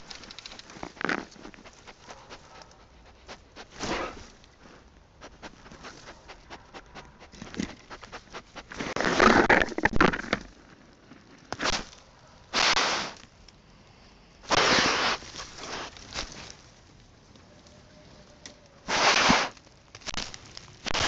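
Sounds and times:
animal rustling dry leaves: 14.5 - 21.0.

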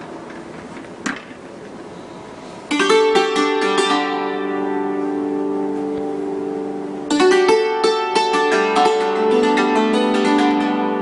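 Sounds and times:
hammered dulcimer playing: 2.7 - 11.0.

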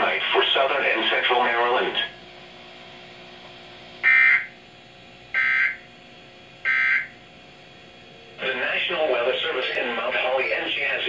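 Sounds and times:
faint steady hum: 0.0 - 11.0
digital data tone bursts: 4.0 - 4.5, 5.4 - 5.8, 6.7 - 7.1.

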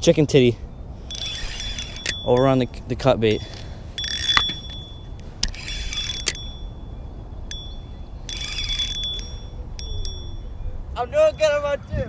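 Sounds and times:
fishing reel gears whirring: 1.0 - 2.6, 4.0 - 10.4
reel clicks: 1.1 - 2.7, 4.0 - 6.8, 7.4 - 10.4.

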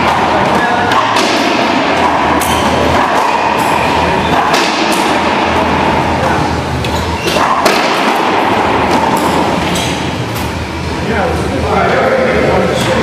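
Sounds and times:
racquetball cracks echoing: 0.0 - 6.1, 7.2 - 10.5
steady hum: 0.0 - 13.0.

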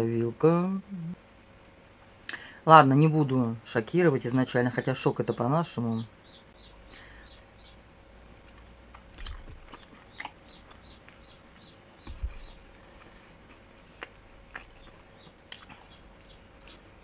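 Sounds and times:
chewing and biting food: 8.1 - 17.0
mouth clicks and smacks: 8.2 - 16.9.

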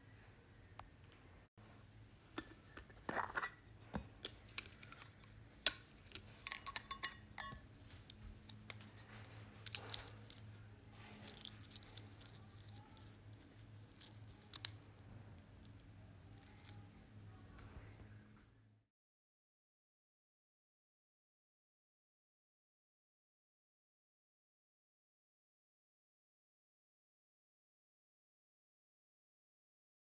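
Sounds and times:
faint steady hum: 0.0 - 18.8
metal accessories clicking: 4.2 - 10.5.

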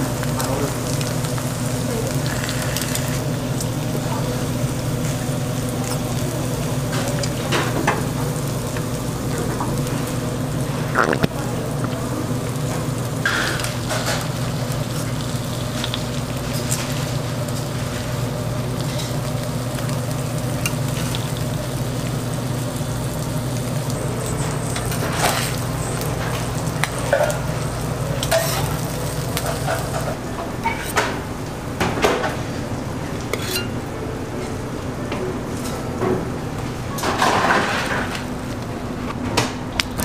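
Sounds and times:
food sizzling on a griddle: 0.0 - 30.2
metal tongs and spatula scraping: 28.2 - 28.8, 30.6 - 31.0, 33.3 - 33.8.

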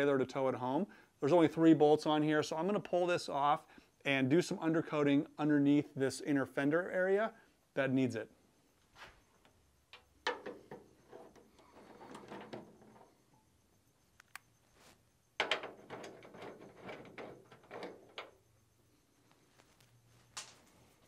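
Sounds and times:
sharp click: 14.2 - 14.5.

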